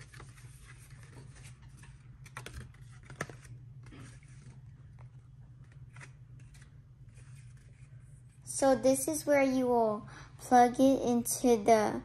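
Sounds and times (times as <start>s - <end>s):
paper leaflet crinkling: 0.0s - 8.1s
low steady hum: 0.0s - 12.0s.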